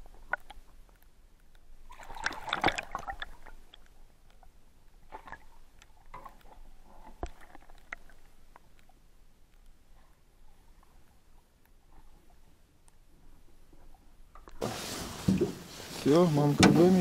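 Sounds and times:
fish splashing in water: 1.9 - 3.9.

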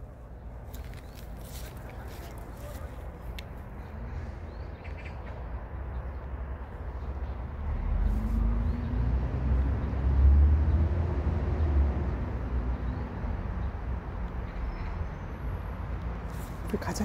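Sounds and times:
vehicle passing by: 6.4 - 13.6.

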